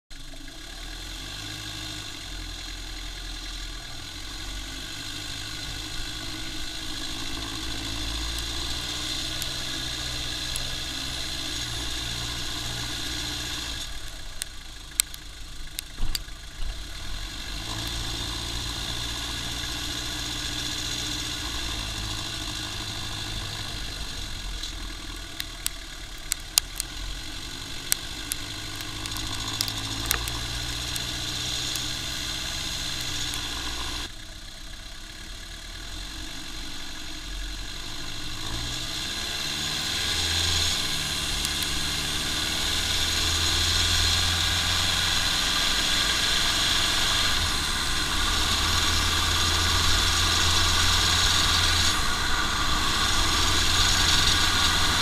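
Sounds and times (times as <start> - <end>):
car engine running: 0.1 - 55.0
road noise: 0.1 - 55.0
sharp clicks and knocks: 14.0 - 16.9, 25.4 - 27.0, 27.8 - 32.0.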